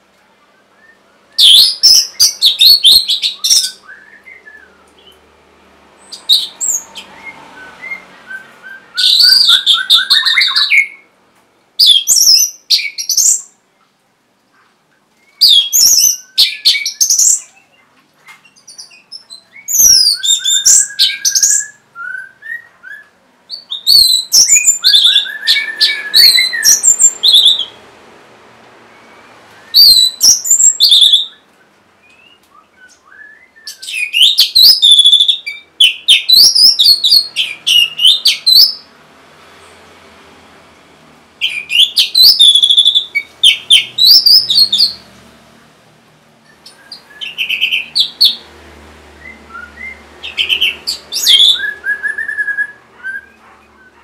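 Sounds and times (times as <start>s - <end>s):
thrush singing whistled notes: 0.5s - 5.2s, 6.0s - 11.1s, 15.2s - 17.8s, 18.5s - 27.8s, 28.9s - 38.9s, 41.4s - 45.1s, 46.4s - 48.5s, 49.1s - 54.0s.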